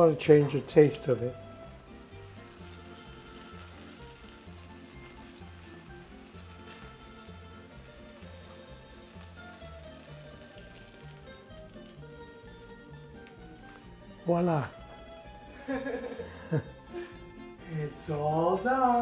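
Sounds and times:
eggplant frying in oil: 0:00.0 - 0:13.1.

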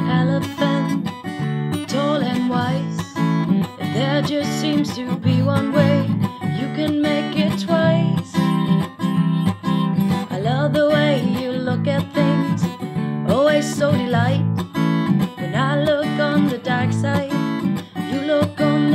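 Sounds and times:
strummed acoustic guitar: 0:00.0 - 0:18.9
woman singing: 0:00.0 - 0:18.9.

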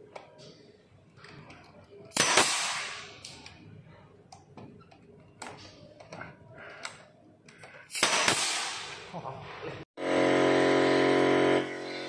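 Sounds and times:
nail gun firing: 0:02.1 - 0:03.2, 0:07.9 - 0:09.0.

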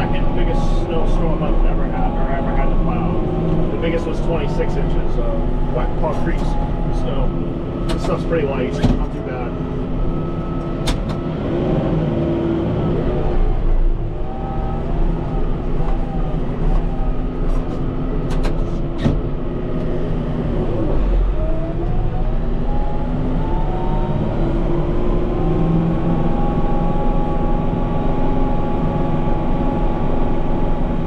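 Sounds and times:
tractor diesel engine running: 0:00.0 - 0:31.0.

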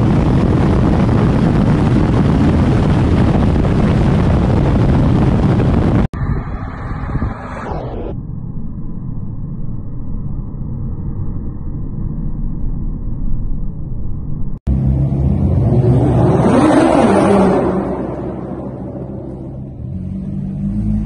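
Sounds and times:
muffled engine rumble: 0:00.0 - 0:21.0
car accelerating in parking garage: 0:14.7 - 0:21.0.

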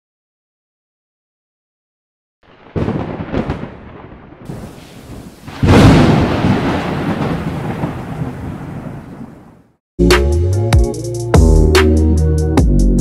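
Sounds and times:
rain rushing: 0:02.4 - 0:09.8
thunder cracks: 0:02.5 - 0:09.8
rumble of thunder: 0:02.6 - 0:09.7.

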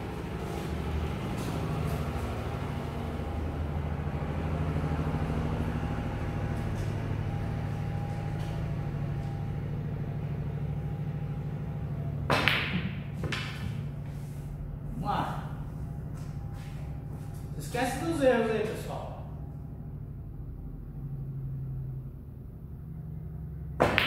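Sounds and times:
low hum: 0:00.0 - 0:23.9
ball hitting cushion: 0:12.3 - 0:13.8, 0:23.8 - 0:24.0
cue striking ball: 0:12.3 - 0:13.9, 0:23.8 - 0:24.0.

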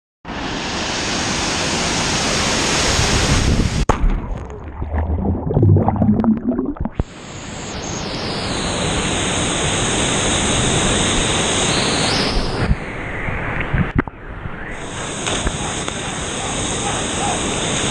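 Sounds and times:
muffled underwater bubbling: 0:04.0 - 0:07.1.

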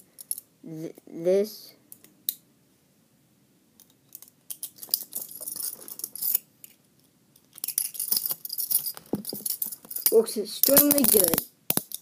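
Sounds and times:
lock pick clicking and scraping: 0:03.8 - 0:06.8, 0:07.4 - 0:12.0
handcuff chain rattling: 0:04.5 - 0:06.4, 0:07.5 - 0:12.0.

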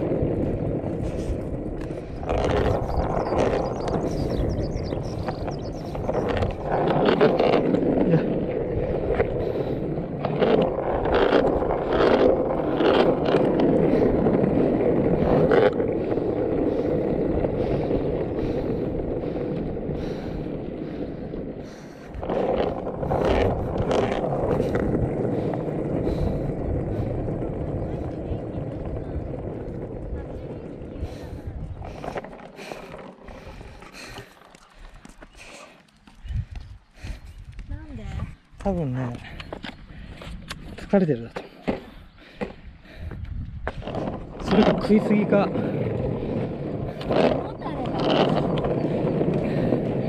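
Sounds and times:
skateboard wheels rolling on asphalt: 0:00.0 - 0:50.0.

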